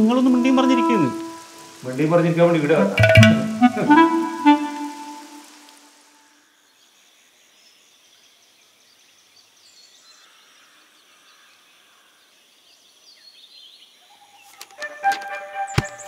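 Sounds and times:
music: 0.0s - 5.8s, 14.8s - 16.0s.

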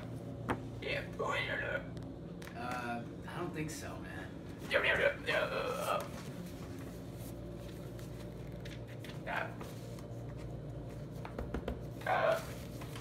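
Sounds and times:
low room hum: 0.0s - 13.0s
paper rustling: 5.7s - 11.3s, 11.9s - 13.0s.

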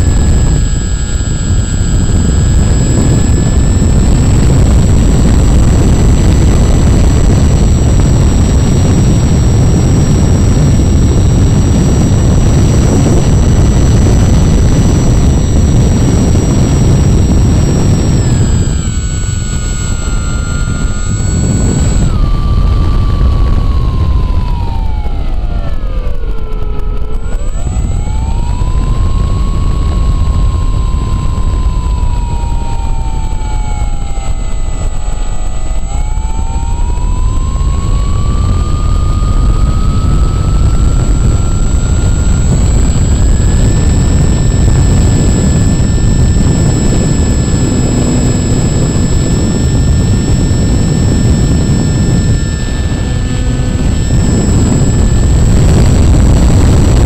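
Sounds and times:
electric motor and propeller whine: 0.0s - 57.0s
wind rushing over microphone: 0.0s - 57.0s.

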